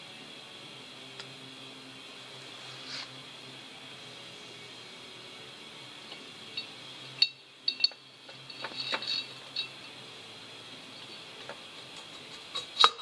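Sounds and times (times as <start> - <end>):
metallic clinks and taps: 6.1 - 10.0.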